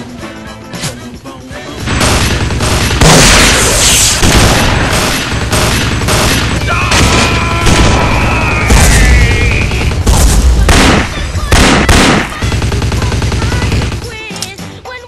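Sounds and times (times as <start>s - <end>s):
rapid gunfire: 1.8s - 14.4s
loud blast: 2.0s - 12.3s
person yelling: 6.6s - 10.0s.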